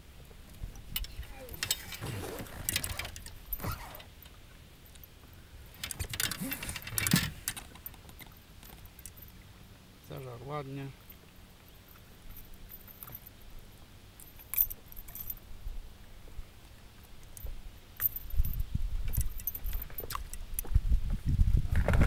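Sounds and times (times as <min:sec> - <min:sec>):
fishing tackle clinking and rattling: 0:00.8 - 0:09.4, 0:11.0 - 0:13.4, 0:14.1 - 0:15.4, 0:17.3 - 0:20.7.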